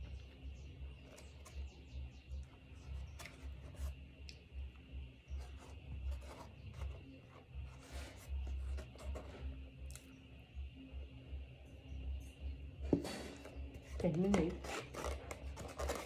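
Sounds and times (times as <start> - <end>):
metal spoon scraping foam box: 13.0 - 16.0.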